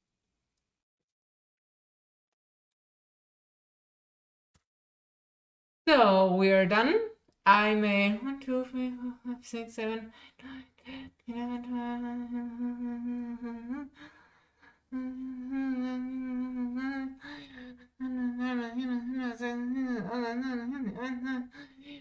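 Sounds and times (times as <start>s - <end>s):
woman humming long notes: 8.2s - 9.4s, 10.4s - 14.1s, 14.9s - 22.0s.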